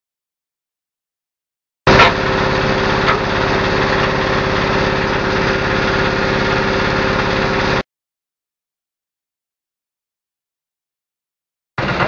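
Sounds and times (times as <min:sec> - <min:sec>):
small engine running steadily: 0:01.9 - 0:07.8, 0:11.8 - 0:12.0.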